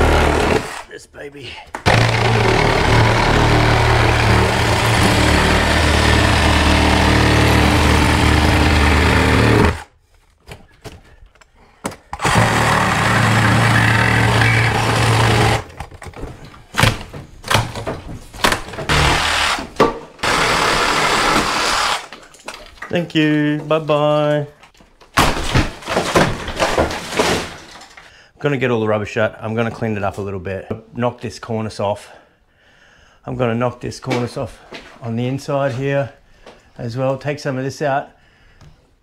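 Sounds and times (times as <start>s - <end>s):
demolition power tool running: 0.0s - 0.9s, 1.9s - 9.9s, 12.2s - 15.8s, 18.4s - 22.1s.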